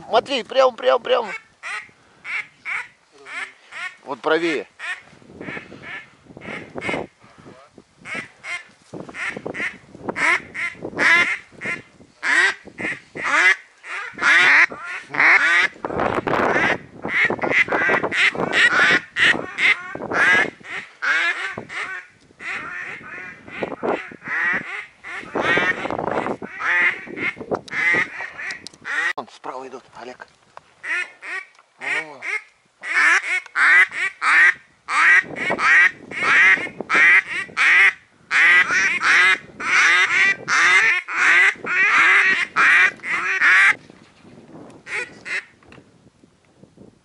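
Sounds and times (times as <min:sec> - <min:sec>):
duck quacking: 0:01.3 - 0:04.0, 0:09.2 - 0:15.7, 0:16.5 - 0:29.2, 0:30.8 - 0:43.8, 0:44.9 - 0:45.5.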